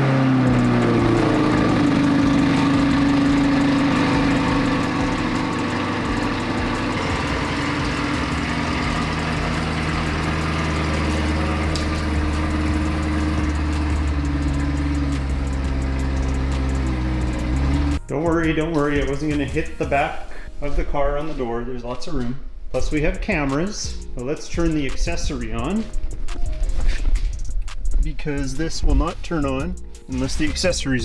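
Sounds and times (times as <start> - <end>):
car engine idling: 0.0 - 20.5.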